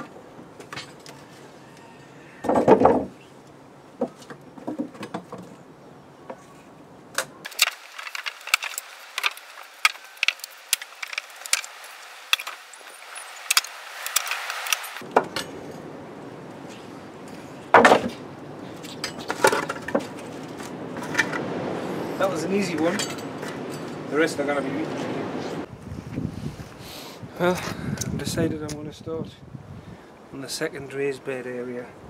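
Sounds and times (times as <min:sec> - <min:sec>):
wooden boards cracking: 0:02.4 - 0:03.1, 0:04.0 - 0:05.6, 0:07.1 - 0:15.4, 0:17.7 - 0:21.5.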